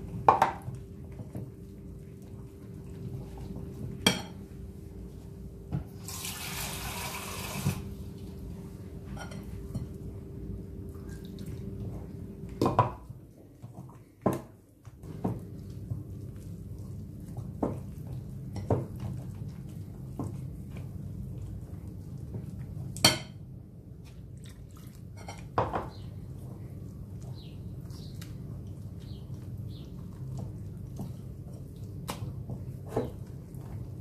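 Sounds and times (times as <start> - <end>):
water pouring: 6.0 - 7.8
whisk mixing batter: 15.0 - 23.0.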